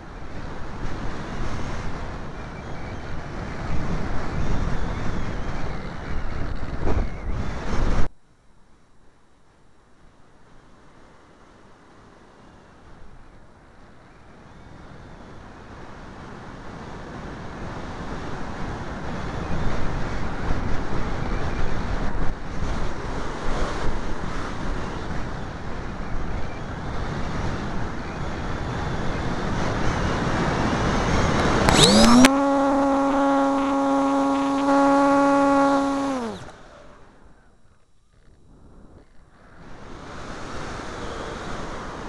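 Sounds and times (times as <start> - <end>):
motor and propeller whine: 27.0 - 42.0.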